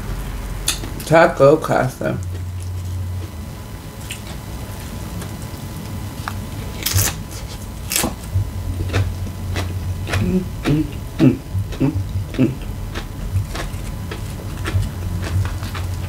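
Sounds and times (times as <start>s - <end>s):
crunching chips: 2.1s - 16.0s
fingers picking through food: 4.0s - 10.9s, 11.7s - 16.0s
mouth sounds: 8.7s - 16.0s.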